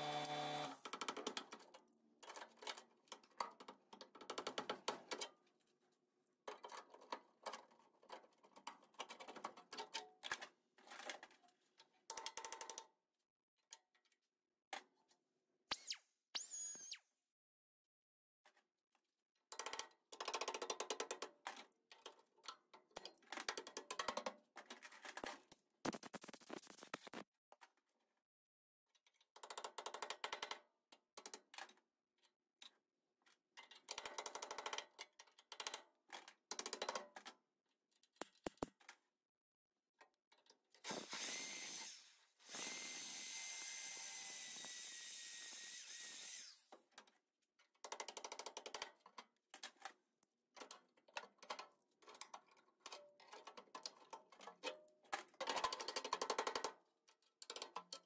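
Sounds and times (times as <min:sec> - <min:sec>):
power tool on sheet metal: 0:00.0 - 0:00.8, 0:40.9 - 0:46.7.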